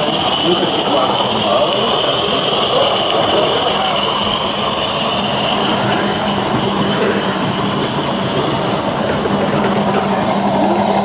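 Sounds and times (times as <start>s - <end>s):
steady low hum: 0.0s - 11.0s
steam hiss: 0.0s - 11.0s
wheels rumbling on rail: 0.0s - 11.0s.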